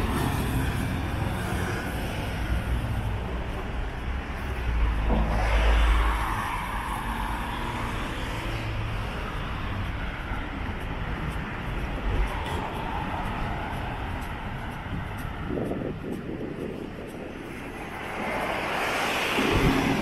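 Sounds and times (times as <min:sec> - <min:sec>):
street traffic noise: 0:00.0 - 0:20.0
car passing close by: 0:04.8 - 0:08.9.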